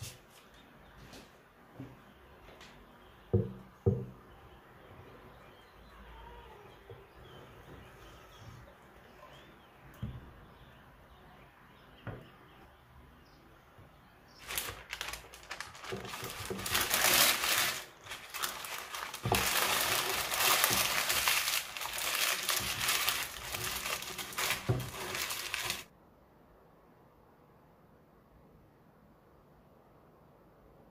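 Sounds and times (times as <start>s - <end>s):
baking paper crinkling: 14.4s - 25.9s.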